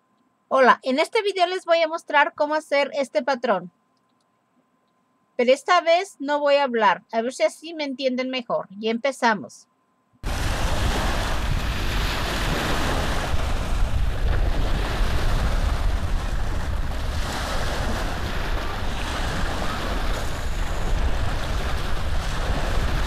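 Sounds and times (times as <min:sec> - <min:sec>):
loud rushing noise with rumble: 0:10.2 - 0:23.0.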